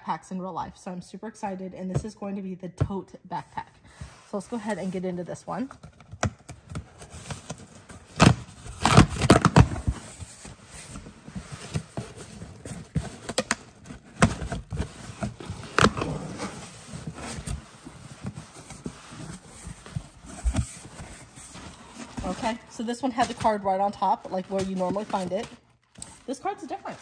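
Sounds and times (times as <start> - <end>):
cardboard flaps scraping and crackling: 5.6 - 27.0
packing tape ripping off cardboard: 5.9 - 27.0.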